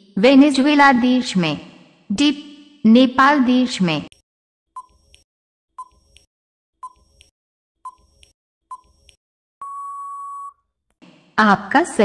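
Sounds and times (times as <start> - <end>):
long steady beep: 9.6 - 10.6.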